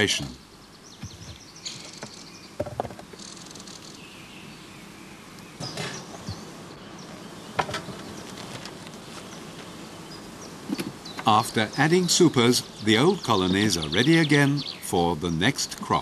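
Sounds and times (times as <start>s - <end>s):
honeybees buzzing: 0.0s - 16.0s
knocks of hive equipment: 1.0s - 3.2s, 7.5s - 9.0s.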